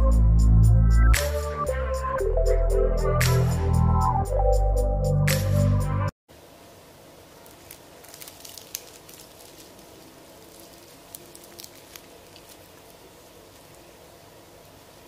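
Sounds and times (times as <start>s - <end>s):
fried chicken crust crackling: 7.3s - 14.3s.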